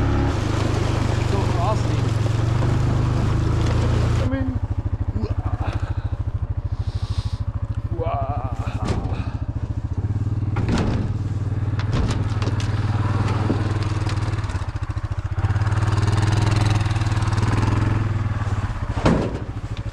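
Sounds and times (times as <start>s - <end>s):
atv engine running: 0.0s - 19.9s
sharp knocks and rattles: 8.8s - 15.4s, 18.4s - 19.9s.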